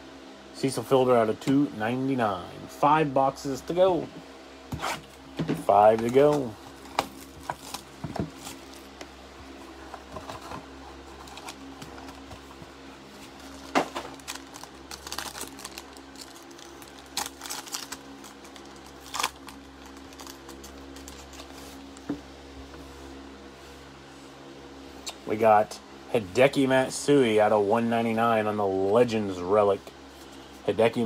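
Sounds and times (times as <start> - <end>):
steady low hum: 0.0 - 31.0
foil pack crinkling: 5.8 - 9.0, 10.1 - 12.5, 13.1 - 21.9.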